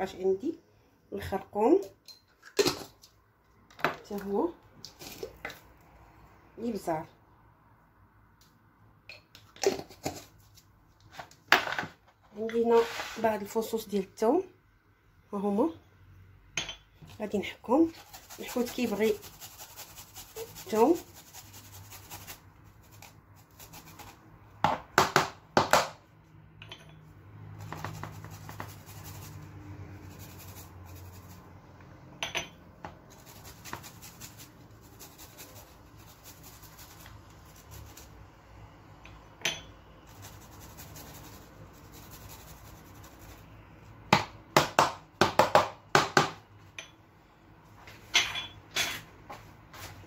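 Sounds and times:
garlic grating on metal grater: 17.9 - 24.2, 27.6 - 31.4, 33.1 - 38.2, 40.0 - 43.5.

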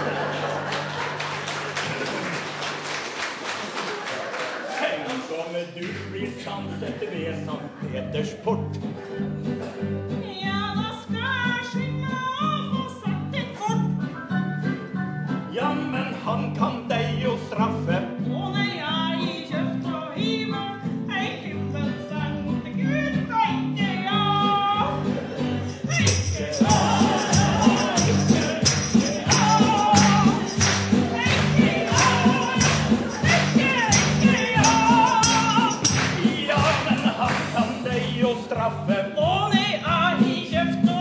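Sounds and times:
acoustic guitar: 0.0 - 2.8, 5.8 - 41.0
woman singing: 10.1 - 14.1, 18.2 - 25.0, 29.0 - 35.7
tambourine shaken in rhythm: 25.2 - 41.0.

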